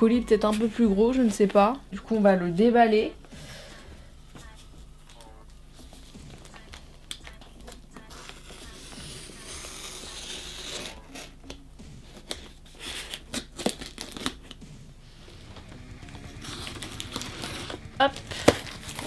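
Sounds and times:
box cutter slitting packing tape: 0:08.1 - 0:11.4, 0:12.2 - 0:14.6.

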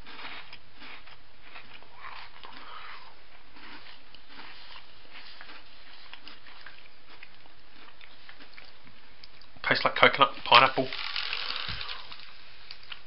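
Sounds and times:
person chewing biscuit: 0:00.0 - 0:09.6
steady background hiss: 0:00.6 - 0:13.0.

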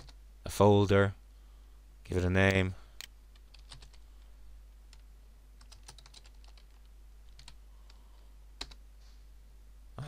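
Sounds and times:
faint keyboard typing: 0:00.0 - 0:00.2, 0:02.4 - 0:04.3, 0:04.9 - 0:08.8.

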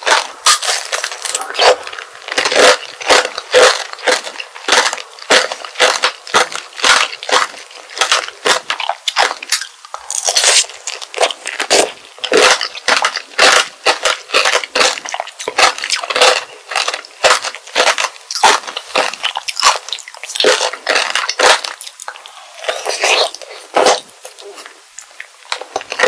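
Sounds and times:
chewing fruit: 0:00.0 - 0:26.0
sugar shell crunching: 0:00.0 - 0:26.0.

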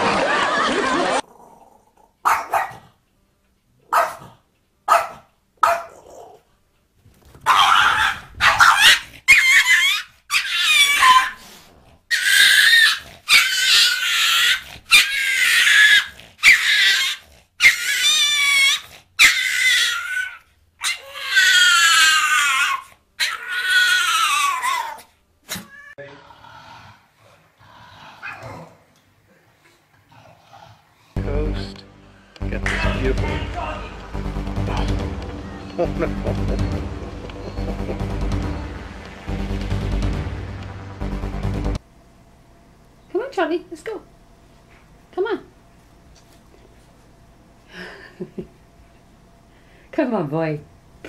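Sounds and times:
small dog barking and growling: 0:01.2 - 0:03.0, 0:03.8 - 0:06.5, 0:07.4 - 0:25.8, 0:28.1 - 0:28.9.

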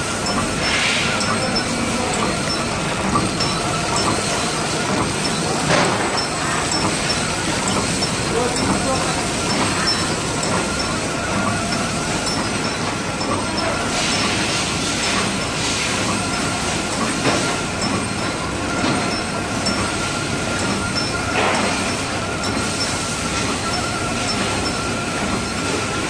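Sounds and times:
high machine whine: 0:00.0 - 0:26.0
wrapping machine clatter: 0:00.1 - 0:19.1.

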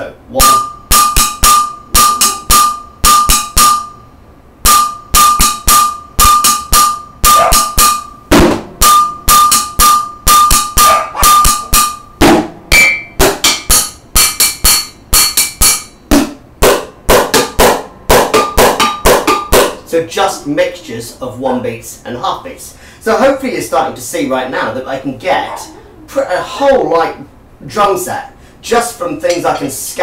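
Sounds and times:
drumsticks striking steel pot: 0:00.4 - 0:04.0, 0:04.6 - 0:19.9
drumsticks on kitchen items: 0:08.8 - 0:12.1, 0:12.7 - 0:19.9, 0:29.2 - 0:29.8.

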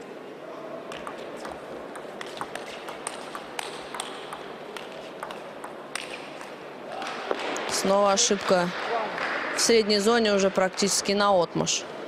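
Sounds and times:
hall background noise: 0:00.0 - 0:12.0
ping pong ball clicking: 0:00.9 - 0:06.6.

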